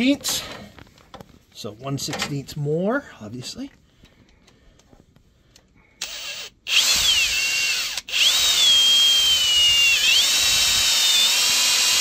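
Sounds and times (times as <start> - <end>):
cordless drill whining: 6.0 - 12.0.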